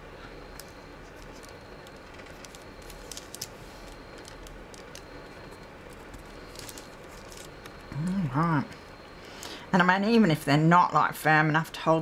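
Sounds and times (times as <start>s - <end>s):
low room hum: 0.0s - 12.0s
paper crinkles and ticks: 0.6s - 7.9s.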